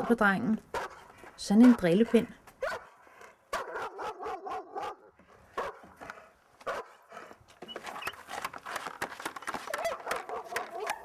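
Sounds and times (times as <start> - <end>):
dog barking angrily: 0.0 - 6.0, 6.6 - 7.4, 9.7 - 11.0
clatter of knocks and clicks: 7.5 - 11.0.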